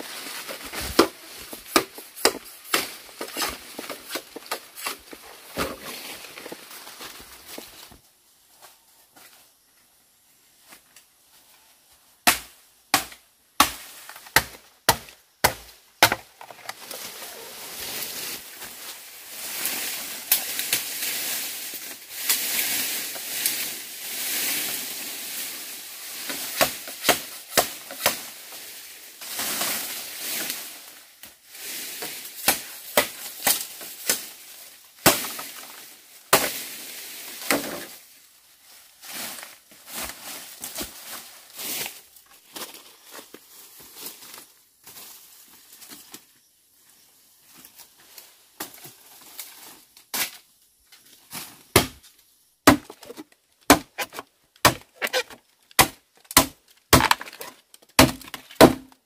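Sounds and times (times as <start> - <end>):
leafy bamboo rustling and scraping: 0.0 - 12.1, 15.5 - 59.0
machete chopping bamboo: 0.9 - 5.0, 12.2 - 16.6, 26.5 - 28.3, 32.4 - 34.3, 35.0 - 36.6, 51.7 - 52.0, 52.6 - 59.0.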